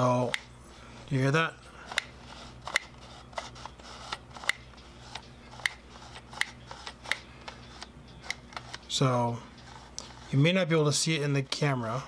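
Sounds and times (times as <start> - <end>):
camera lens clicking: 1.9 - 8.9.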